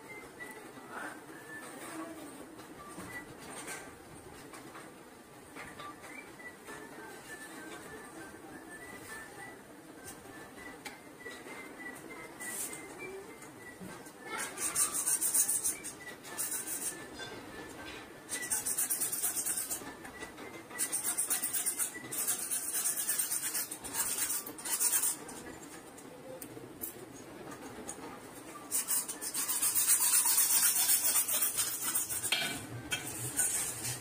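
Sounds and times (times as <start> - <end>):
hacksaw cutting pipe: 28.8 - 34.0.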